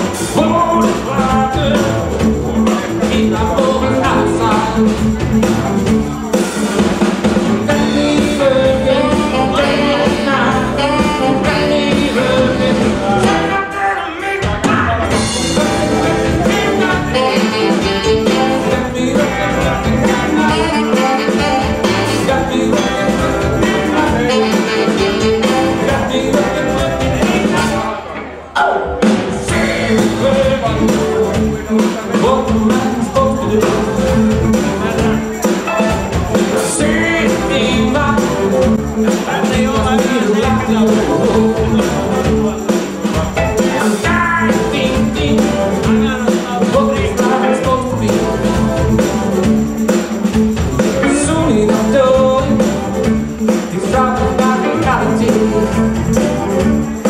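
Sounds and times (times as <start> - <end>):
bass guitar: 0.0 - 57.0
drum kit: 0.0 - 57.0
electric guitar: 0.0 - 57.0
live jazz band playing: 0.0 - 57.0
saxophone: 7.7 - 13.9, 15.2 - 27.9.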